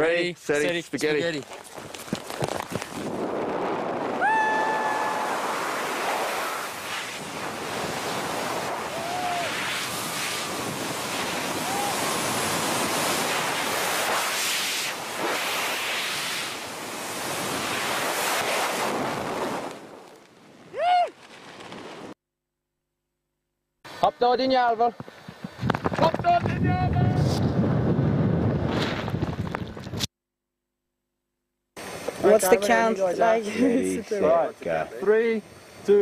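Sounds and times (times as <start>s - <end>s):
wind rushing over microphone: 2.0s - 19.9s, 25.2s - 30.1s
person yelling: 4.2s - 5.4s, 8.9s - 9.6s, 11.6s - 12.1s, 20.8s - 21.1s.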